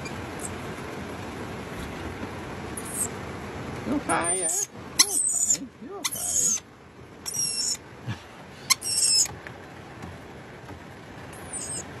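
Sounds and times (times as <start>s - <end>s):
parrot screeching calls: 4.2s - 6.6s, 7.3s - 7.8s, 8.7s - 9.3s, 11.4s - 11.9s.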